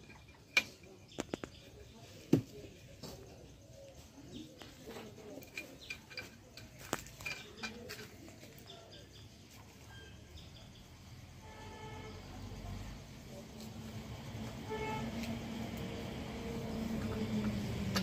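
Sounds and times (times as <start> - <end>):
hand tools clicking on metal: 5.0 - 8.3.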